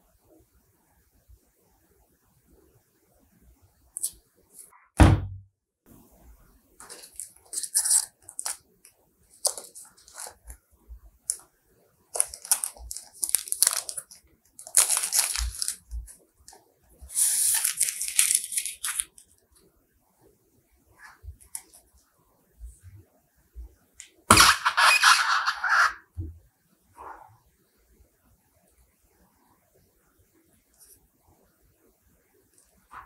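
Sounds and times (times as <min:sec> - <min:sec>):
heavy thump: 0:05.0 - 0:05.4
paper crinkling and tearing: 0:06.8 - 0:08.6, 0:09.3 - 0:10.5, 0:12.2 - 0:16.2, 0:17.1 - 0:19.2, 0:24.3 - 0:26.0.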